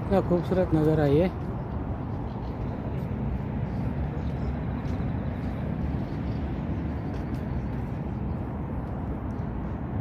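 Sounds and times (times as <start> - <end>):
low outdoor rumble: 0.0 - 10.0.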